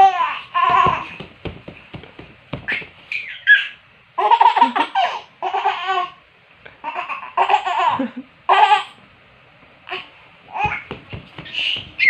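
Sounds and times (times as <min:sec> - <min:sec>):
soft knocks: 0:00.6 - 0:03.0, 0:10.6 - 0:12.0
baby laughing and squealing: 0:02.7 - 0:06.2.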